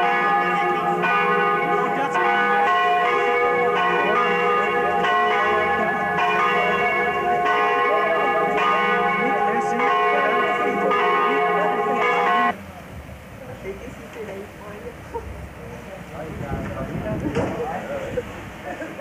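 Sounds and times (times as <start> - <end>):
people chatting: 0.0 - 2.5, 3.1 - 19.0
church bells ringing: 0.0 - 12.6.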